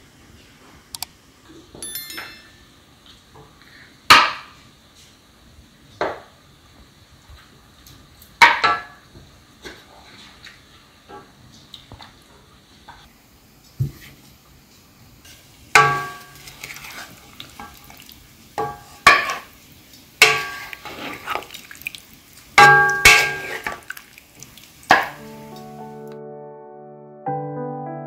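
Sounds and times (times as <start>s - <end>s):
tableware clinking: 1.6s - 2.8s, 22.6s - 23.8s
soft piano music: 24.9s - 28.0s.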